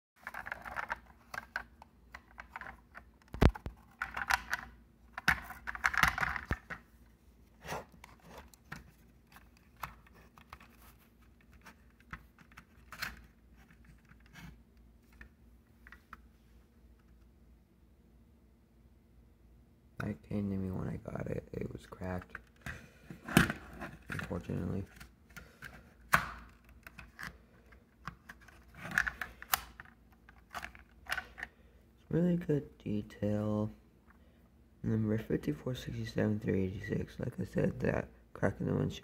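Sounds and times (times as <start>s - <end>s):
toy truck clicks and rustles: 0.2s - 6.7s.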